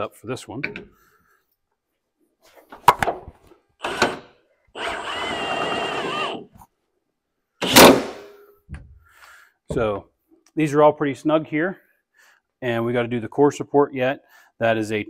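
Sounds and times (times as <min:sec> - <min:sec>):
impact tool whining: 0:03.8 - 0:06.6, 0:07.6 - 0:08.2.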